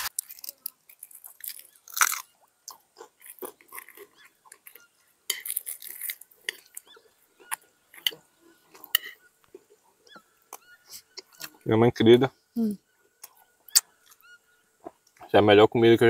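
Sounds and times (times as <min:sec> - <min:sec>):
person chewing crunchy food: 0:00.0 - 0:11.5.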